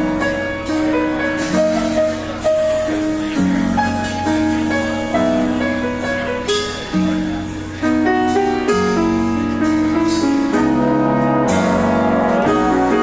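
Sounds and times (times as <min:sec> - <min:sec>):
big band jazz: 0:00.0 - 0:13.0
grand piano: 0:00.0 - 0:13.0
trombones and saxophones chords: 0:09.2 - 0:13.0.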